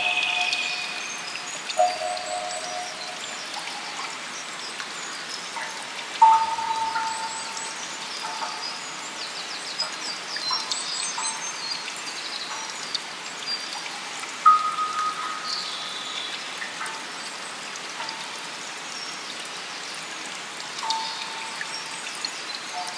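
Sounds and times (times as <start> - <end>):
soft electronic tones: 0.0 - 2.9
bell-like tone ringing: 0.0 - 3.4
small birds chirping: 0.0 - 4.0
flowing water: 0.0 - 22.9.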